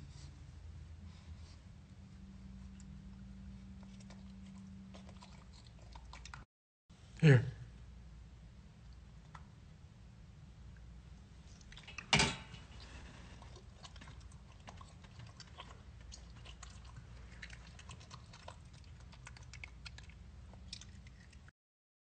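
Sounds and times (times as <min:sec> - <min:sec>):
monkey chewing clicks: 0:13.8 - 0:21.5.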